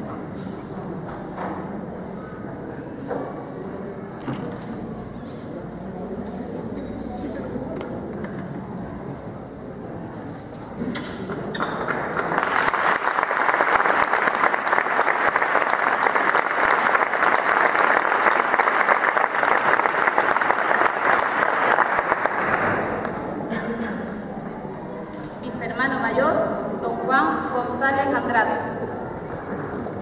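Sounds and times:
audience applauding: 11.5 - 23.2.

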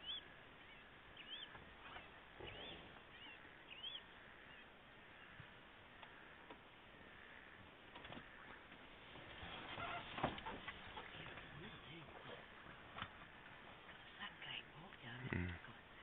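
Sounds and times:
bird calling faintly: 0.0 - 8.9.

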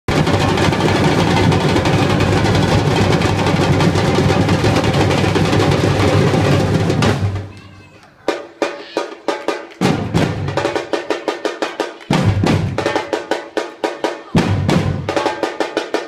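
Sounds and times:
sharp drum hits: 0.1 - 7.5
drum ensemble playing fast groove: 0.1 - 16.0.

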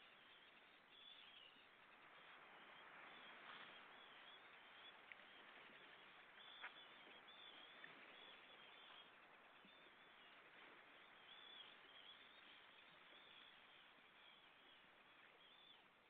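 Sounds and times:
soft shoreline hiss: 0.0 - 16.0
thin high bird calls: 0.0 - 16.0.

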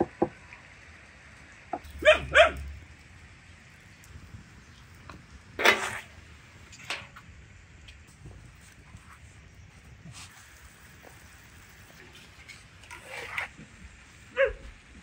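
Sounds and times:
dog barking: 1.9 - 2.8, 14.3 - 14.6.

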